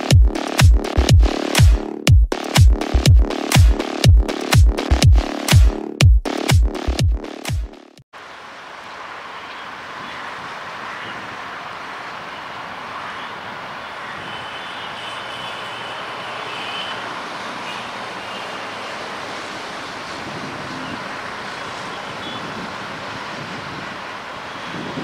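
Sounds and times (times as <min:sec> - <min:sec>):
locomotive engine running: 0:15.9 - 0:25.0.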